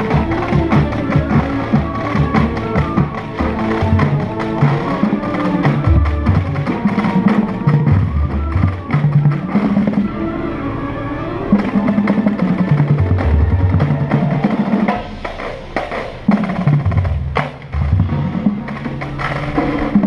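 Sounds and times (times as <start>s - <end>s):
heavy low drum notes: 0.0s - 10.4s, 11.5s - 20.0s
marching band playing: 0.0s - 20.0s.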